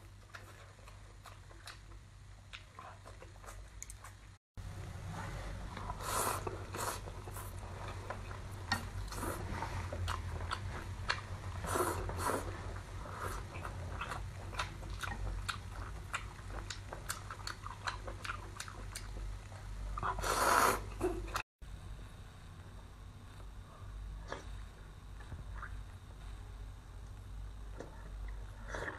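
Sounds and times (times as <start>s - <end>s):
wet chewing with mouth clicks: 0.0s - 4.4s, 5.7s - 21.4s, 25.2s - 26.0s.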